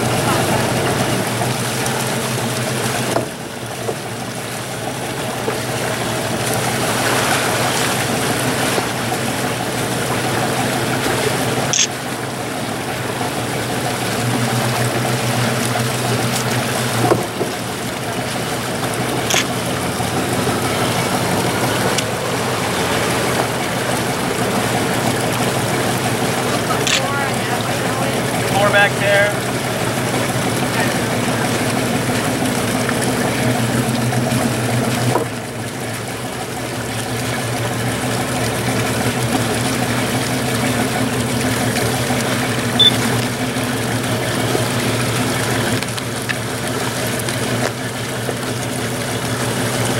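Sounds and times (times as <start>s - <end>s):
boat engine humming: 0.0s - 49.9s
wind and water noise: 0.0s - 49.9s
sharp ticks: 19.2s - 19.6s.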